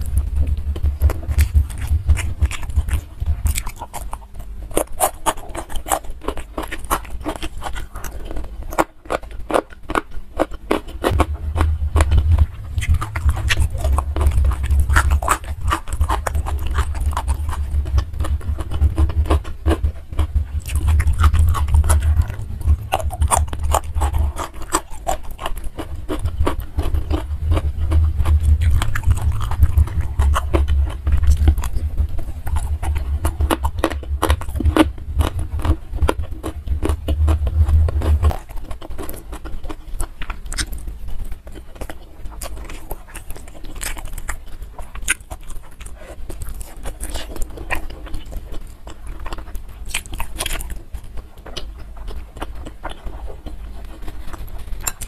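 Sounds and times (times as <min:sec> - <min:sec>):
low rumble: 0:00.0 - 0:05.0, 0:11.0 - 0:39.8
person chewing food: 0:00.0 - 0:55.0.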